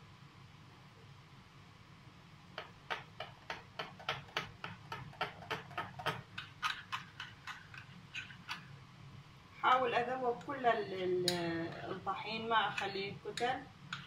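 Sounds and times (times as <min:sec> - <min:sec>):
fork clicking against glass bowl: 0:05.5 - 0:08.6.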